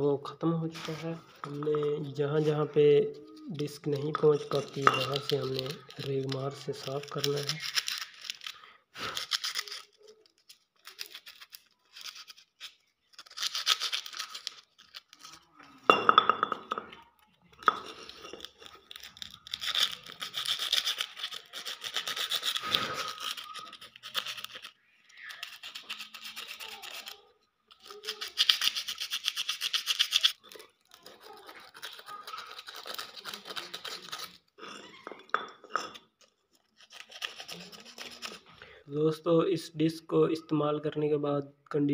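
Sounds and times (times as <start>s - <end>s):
sandpaper rubbing on metal: 19.6s - 24.7s, 25.4s - 27.1s, 27.8s - 30.4s, 36.8s - 38.5s.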